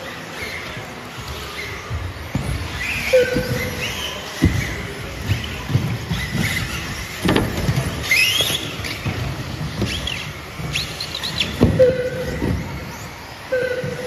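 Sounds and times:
tyres squealing: 0.3s - 14.0s.

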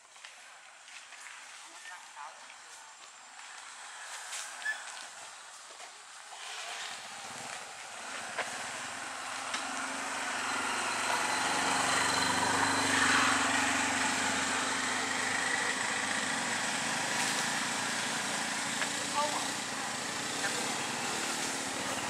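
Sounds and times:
passing vehicle engine: 6.4s - 22.0s.

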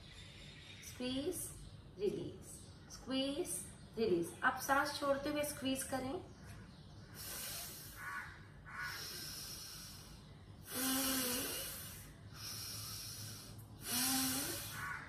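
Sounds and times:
woman exhaling hard: 8.8s - 14.9s.

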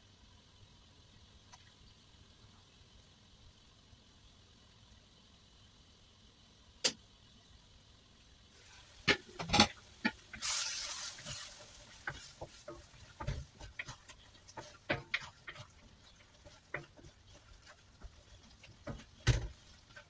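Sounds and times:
food sizzling: 0.0s - 20.0s
wooden spatula scraping wok: 8.6s - 20.0s
spatula knocking against pan: 12.1s - 20.0s.

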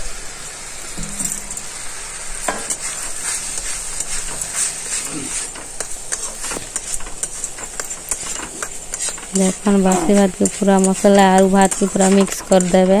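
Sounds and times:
frying sizzle: 0.0s - 13.0s
spatula scraping a pan: 2.3s - 13.0s.

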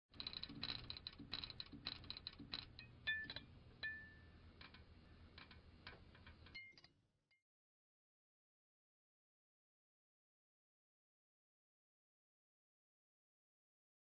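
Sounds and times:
crackling clicks: 0.1s - 3.5s, 4.5s - 6.9s
faint electrical hum: 0.2s - 7.1s.

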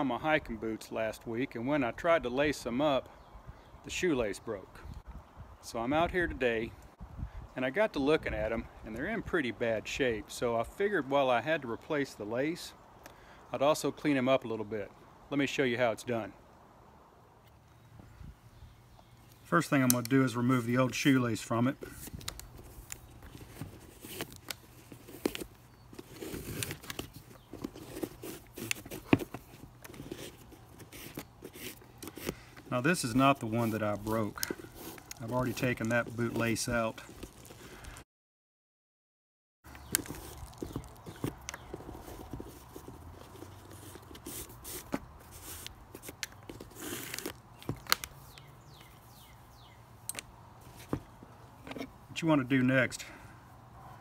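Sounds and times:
lace rubbing rustles: 19.2s - 38.0s, 39.7s - 49.5s
bootlace scraping through eyelets: 21.6s - 38.0s, 39.7s - 49.0s.

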